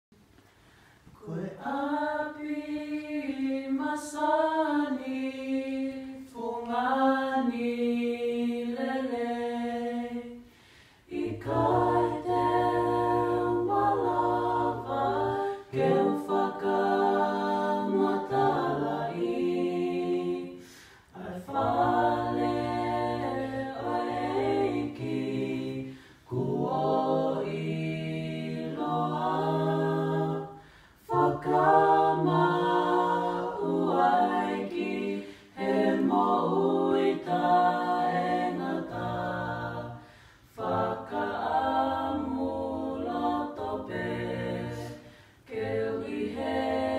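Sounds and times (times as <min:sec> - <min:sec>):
a cappella group singing harmony: 0:00.2 - 0:46.9.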